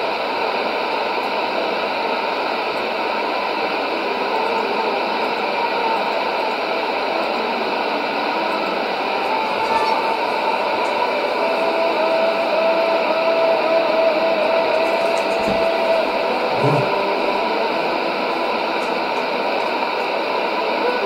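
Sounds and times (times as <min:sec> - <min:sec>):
radio static hiss: 0:14.9 - 0:19.6.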